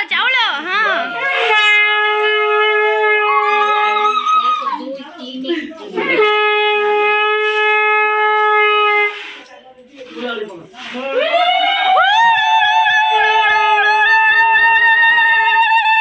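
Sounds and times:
conch shell blasts: 0:01.1 - 0:04.4, 0:06.0 - 0:09.4.

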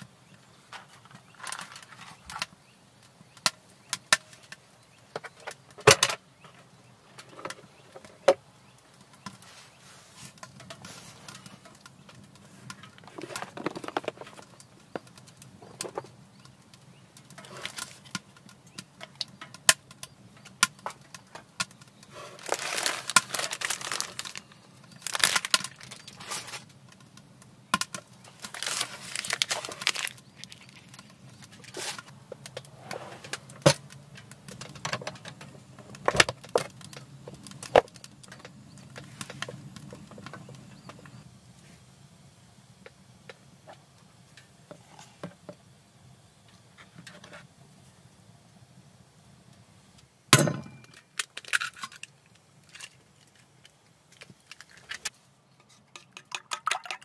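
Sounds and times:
rustling: 0:08.9 - 0:16.6, 0:20.8 - 0:26.9, 0:28.0 - 0:41.9
items knocking and clicking: 0:10.3 - 0:41.2, 0:50.4 - 0:52.1, 0:52.7 - 0:57.0.

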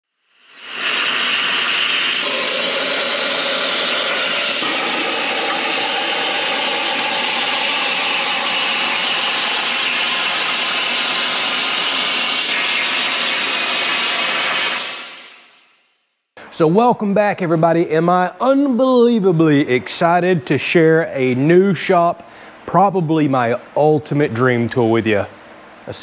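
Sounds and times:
power tool running: 0:00.6 - 0:15.5.

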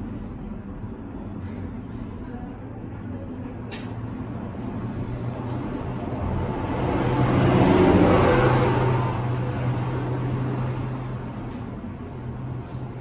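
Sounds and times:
steady low hum: 0:00.0 - 0:13.0
vehicle passing by: 0:04.3 - 0:13.0.

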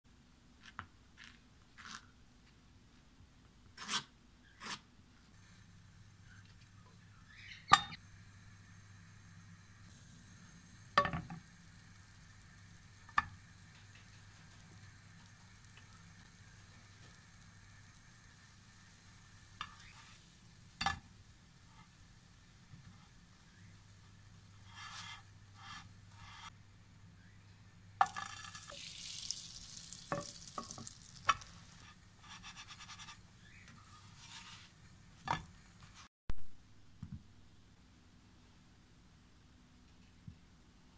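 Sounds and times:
low steady hum: 0:05.1 - 0:40.9
butter sizzling in a pan: 0:05.4 - 0:26.6, 0:27.7 - 0:36.1.

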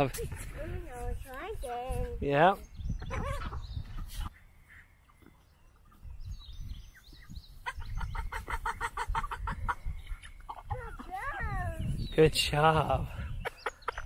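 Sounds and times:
chickens and ducks calling: 0:02.9 - 0:12.0, 0:12.6 - 0:14.0
rapid clucking calls: 0:07.5 - 0:11.4, 0:13.3 - 0:14.0.

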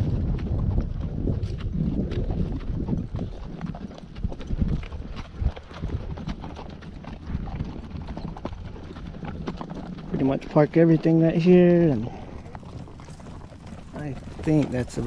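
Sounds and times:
horse hooves on dirt: 0:00.0 - 0:15.0.

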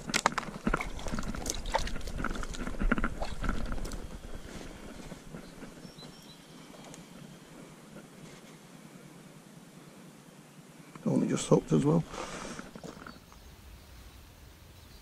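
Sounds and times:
small splashes: 0:00.0 - 0:04.0.

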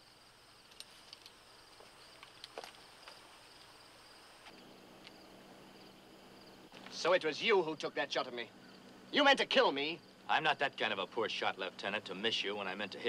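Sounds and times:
faint low hum: 0:00.0 - 0:13.0
film soundtrack hiss: 0:00.0 - 0:13.0.

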